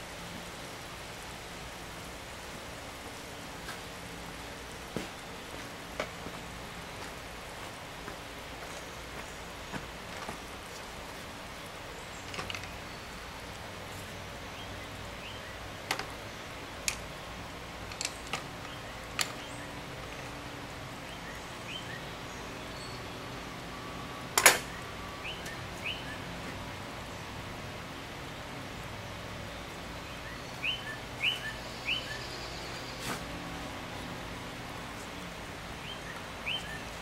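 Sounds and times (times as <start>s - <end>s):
steady background hiss: 0.0s - 37.0s
bird chirps: 24.7s - 26.3s, 30.1s - 33.1s, 35.8s - 37.0s.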